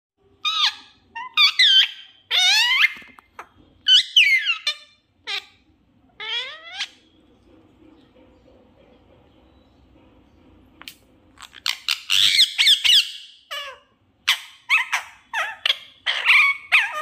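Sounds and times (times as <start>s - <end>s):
parrot calling: 0.4s - 7.2s, 11.4s - 17.0s.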